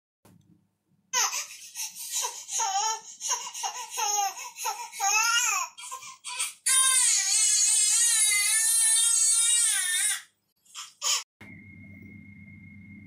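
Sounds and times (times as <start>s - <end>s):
baby whimpering and crying: 1.2s - 11.3s.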